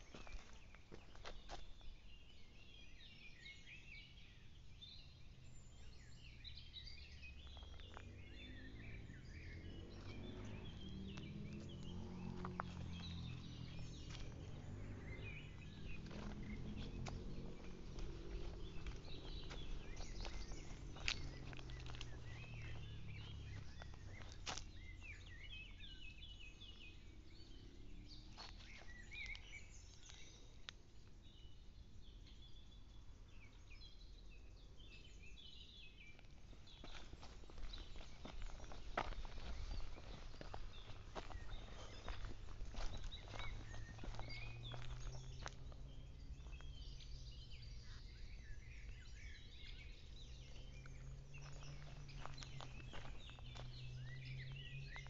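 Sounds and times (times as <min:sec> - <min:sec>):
footsteps on leafy dirt trail: 0:00.0 - 0:02.2, 0:07.3 - 0:26.6, 0:28.3 - 0:30.5, 0:36.0 - 0:55.0
birds chirping and singing: 0:00.0 - 0:55.0
low rumble: 0:07.3 - 0:25.3.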